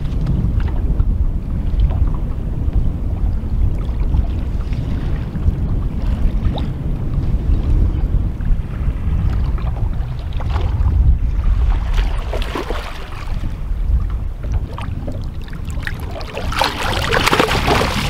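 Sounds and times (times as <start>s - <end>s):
wind rumble on microphone: 0.0s - 18.0s
fish splashing and thrashing in water: 11.6s - 13.3s, 14.8s - 18.0s.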